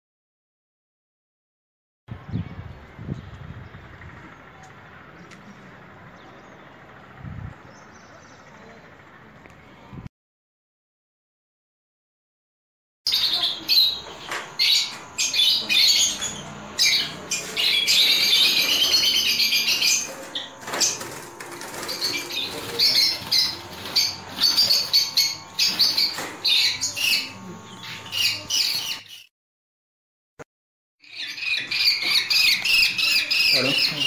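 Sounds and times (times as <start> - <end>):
lovebirds chattering and screeching: 13.1 - 29.3, 31.0 - 34.0
wing flapping: 17.3 - 27.3.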